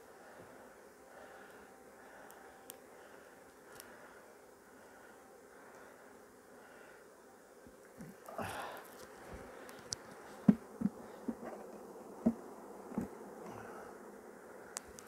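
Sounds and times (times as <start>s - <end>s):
honeybees buzzing: 0.0s - 15.0s
wooden hive frames knocking: 10.4s - 13.2s.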